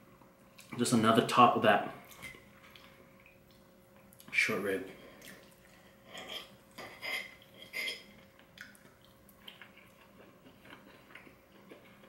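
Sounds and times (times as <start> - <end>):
knife and fork scraping a plate: 6.1 - 8.2.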